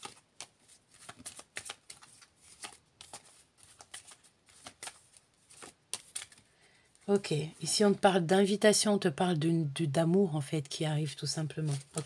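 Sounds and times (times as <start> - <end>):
cards being shuffled: 0.0 - 7.3, 11.5 - 12.0.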